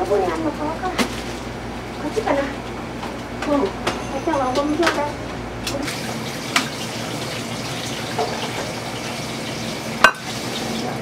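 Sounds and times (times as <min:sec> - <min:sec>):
utensils clinking: 0:10.0 - 0:10.4.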